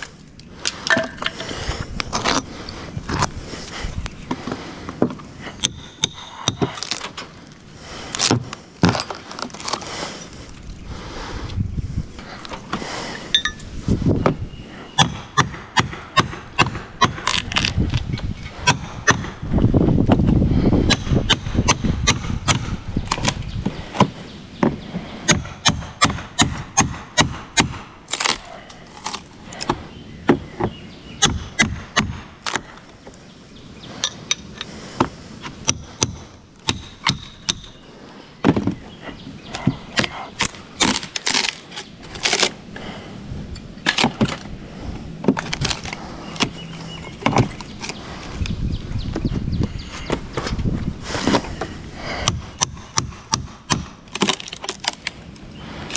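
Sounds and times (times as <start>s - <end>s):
wood cracking: 4.0s - 10.7s, 16.2s - 18.1s, 27.6s - 33.2s, 38.4s - 43.0s, 43.8s - 44.6s, 45.2s - 48.6s, 50.1s - 55.9s.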